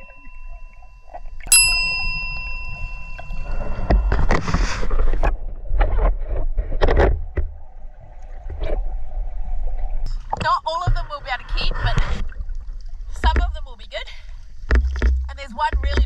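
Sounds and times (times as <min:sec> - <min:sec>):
bell-like ding: 0:00.0 - 0:04.6
water sloshing and bubbling: 0:00.0 - 0:16.0.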